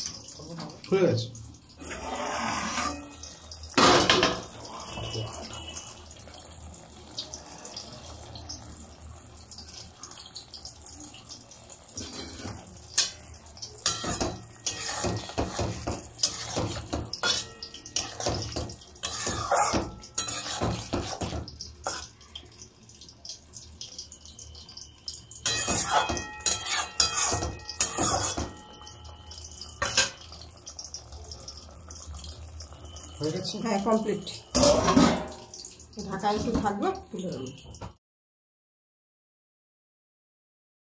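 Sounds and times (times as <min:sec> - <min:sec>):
spatula scraping metal pan: 0:01.8 - 0:03.4, 0:12.0 - 0:13.2, 0:13.8 - 0:22.1, 0:25.4 - 0:28.6.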